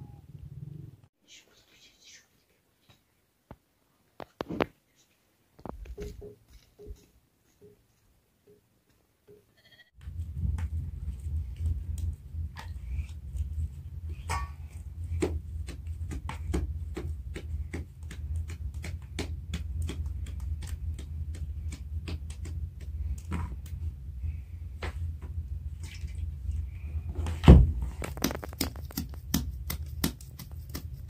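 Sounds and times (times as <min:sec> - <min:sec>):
low rumble: 0:10.0 - 0:29.7
hands slapping dough: 0:10.1 - 0:23.8, 0:27.2 - 0:31.0.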